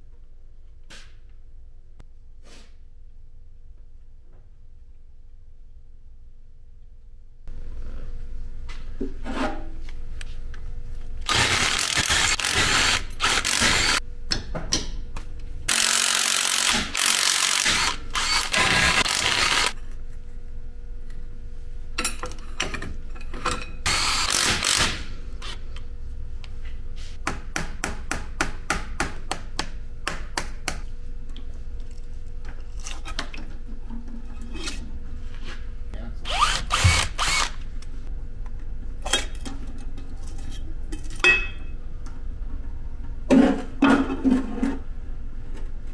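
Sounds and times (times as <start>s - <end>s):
power drill running: 11.2s - 14.0s, 15.7s - 19.8s, 23.9s - 25.6s, 36.3s - 37.6s.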